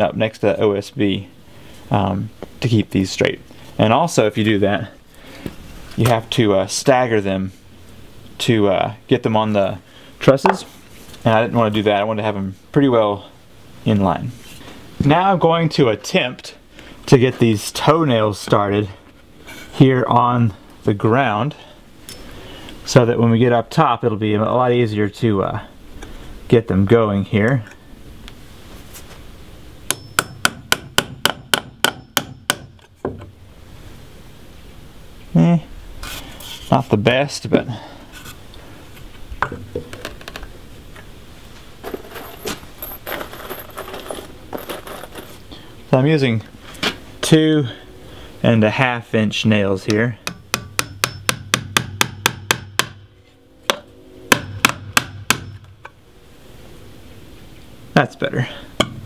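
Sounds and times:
faint high metallic ring: 0:22.0 - 0:22.4, 0:29.9 - 0:30.5, 0:52.6 - 0:57.0
hammer driving nails into metal: 0:29.9 - 0:32.8
hammer striking nails: 0:29.9 - 0:32.8, 0:50.3 - 0:53.0, 0:53.7 - 0:55.6.

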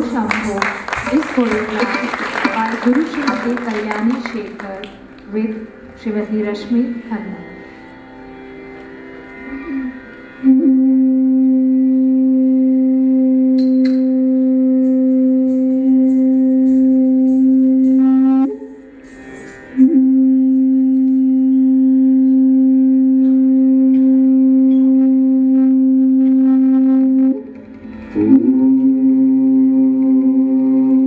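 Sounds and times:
person singing long held note: 0:09.4 - 0:18.8, 0:19.8 - 0:31.0.

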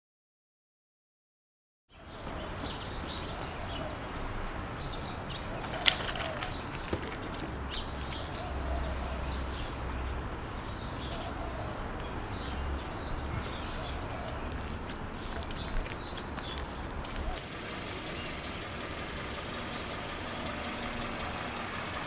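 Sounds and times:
birds chirping: 0:04.8 - 0:22.0.

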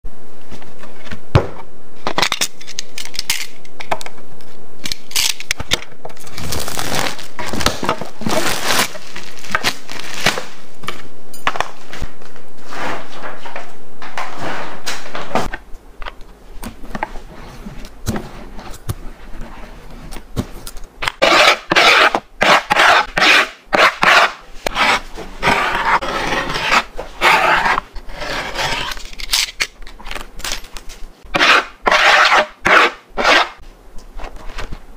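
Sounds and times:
hands scraping grip tape: 0:16.6 - 0:33.6.

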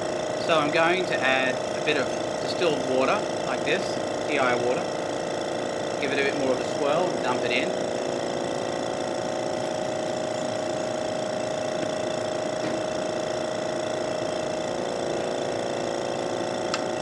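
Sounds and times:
vacuum pump humming: 0:00.0 - 0:17.0.

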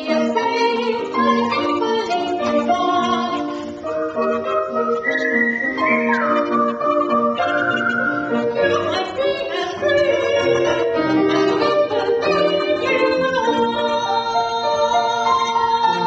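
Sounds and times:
woman singing: 0:00.0 - 0:03.5, 0:08.5 - 0:16.0
grand piano accompaniment: 0:00.0 - 0:16.0.

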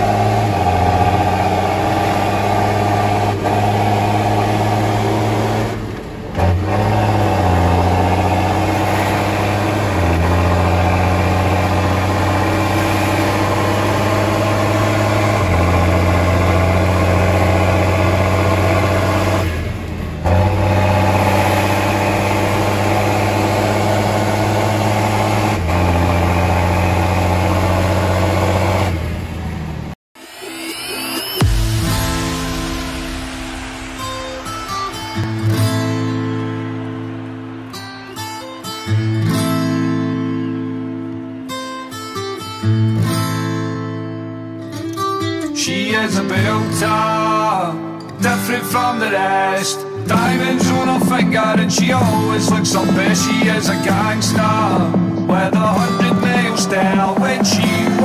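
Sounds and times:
diesel engine under load: 0:00.0 - 0:30.0, 0:50.0 - 0:58.0.

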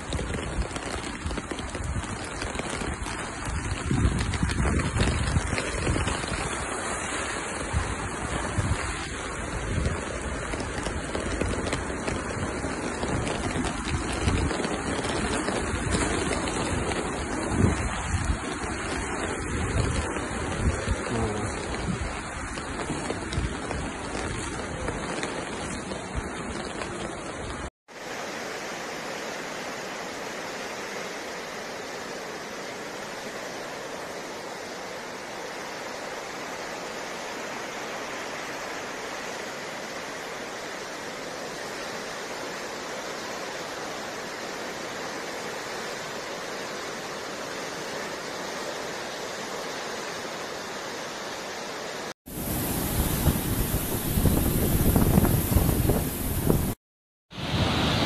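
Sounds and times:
floodwater rushing: 0:00.0 - 0:58.0
wind buffeting microphone: 0:07.6 - 0:25.1, 0:52.3 - 0:56.8.

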